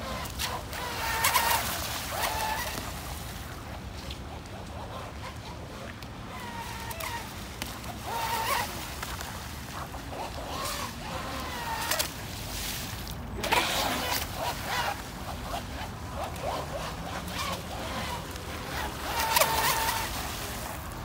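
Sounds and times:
model boat motor whining: 0.0 - 12.6, 13.3 - 21.0
rushes of water spray: 0.0 - 21.0.

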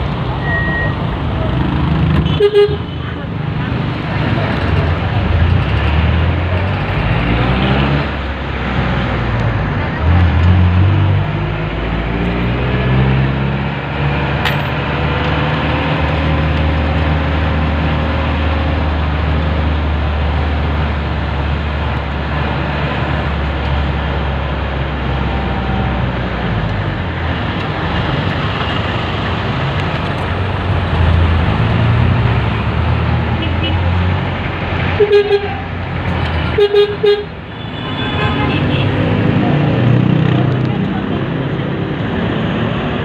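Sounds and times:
road and traffic noise: 0.0 - 43.0
diesel engine revving and droning: 3.6 - 37.4.

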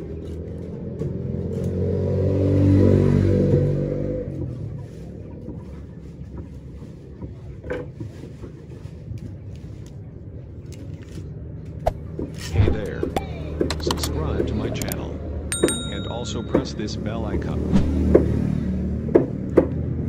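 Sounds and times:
vehicle engine passing by: 0.5 - 5.0, 16.2 - 20.0.

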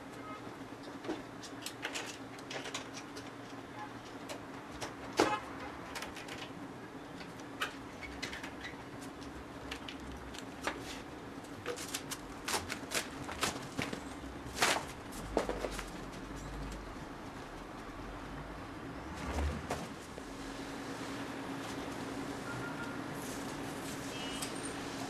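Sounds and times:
scrape-rustle: 23.2 - 25.0.

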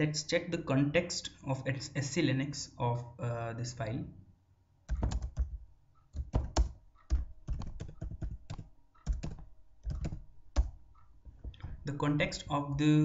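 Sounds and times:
keyboard typing clicks: 4.9 - 12.8.

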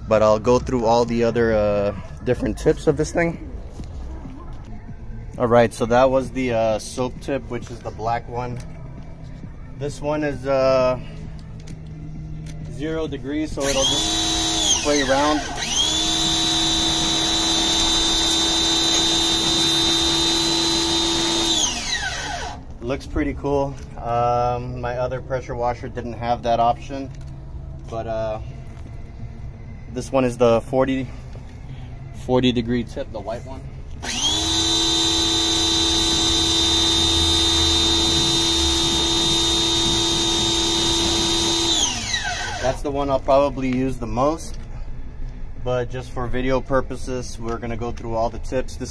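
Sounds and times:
pressure washer motor whine: 13.5 - 22.6, 34.0 - 42.8.

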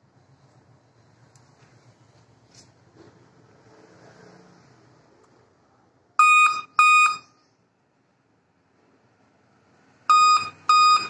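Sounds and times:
laptop short high beeps: 6.2 - 7.4, 10.1 - 11.0.

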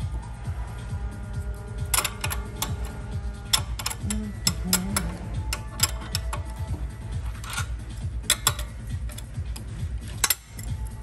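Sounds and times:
wrench clicking on metal fitting: 1.9 - 6.6, 7.4 - 10.8.

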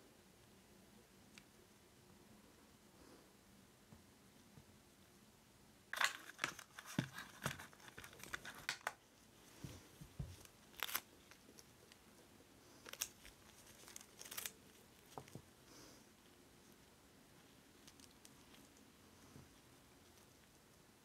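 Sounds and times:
gloved fingers crinkling: 12.8 - 15.4.

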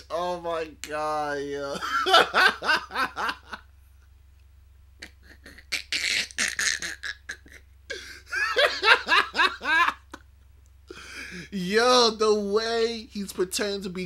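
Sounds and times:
man laughing hard: 1.7 - 3.6, 5.0 - 10.2.

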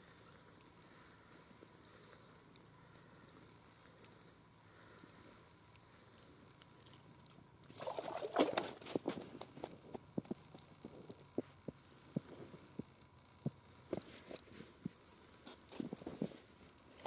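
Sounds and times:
fish splashing in water: 7.7 - 9.4
fish slapping on ice: 7.7 - 9.7.

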